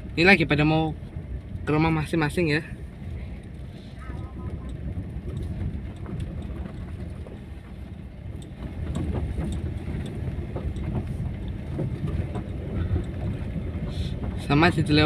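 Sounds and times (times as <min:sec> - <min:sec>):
tyre and engine rumble: 0:00.0 - 0:15.0
knocks and rattles: 0:04.1 - 0:15.0.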